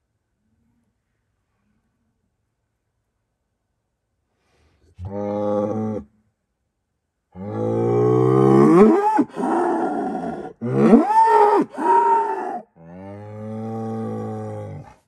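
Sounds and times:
bull bellowing: 0:05.0 - 0:06.1, 0:07.4 - 0:15.0.

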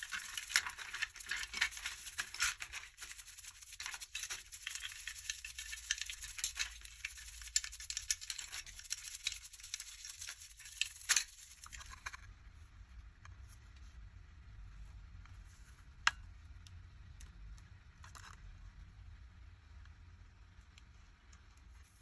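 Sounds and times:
toothbrushes scrubbing in water: 0:00.0 - 0:11.9.

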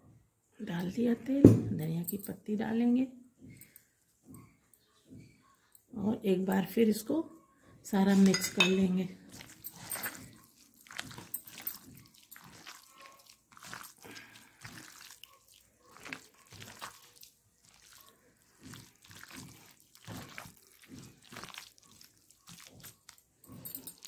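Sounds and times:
fingers squelching mashed eggplant: 0:09.2 - 0:24.0.

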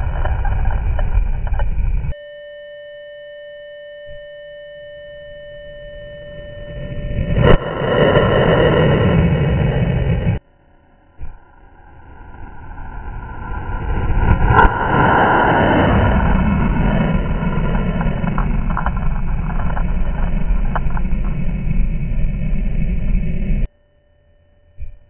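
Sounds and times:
slowed rocket motor rumble: 0:00.0 - 0:02.2, 0:05.5 - 0:10.4, 0:11.0 - 0:23.7
sharp crack: 0:07.2 - 0:10.4, 0:11.2 - 0:23.7.

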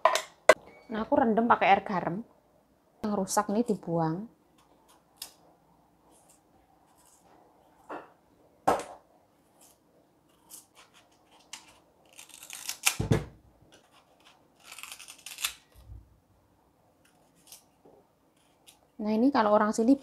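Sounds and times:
knife scraping fruit skin: 0:09.6 - 0:13.0, 0:13.7 - 0:15.8, 0:17.0 - 0:17.7
thud on cutting board: 0:13.0 - 0:13.4
knife crunching through fruit: 0:13.8 - 0:15.7.

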